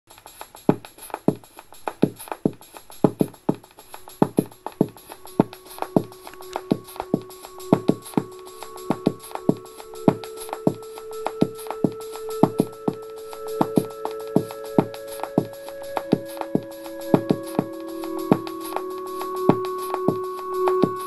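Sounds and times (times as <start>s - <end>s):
drum machine beat: 0.2s - 21.0s
held synth note: 4.6s - 21.0s.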